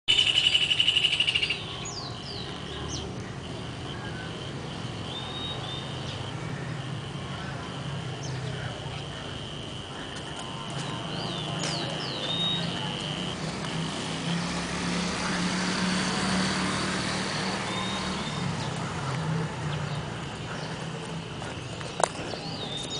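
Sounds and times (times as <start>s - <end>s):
downward-sweeping bird chirps: 0.1s - 3.0s.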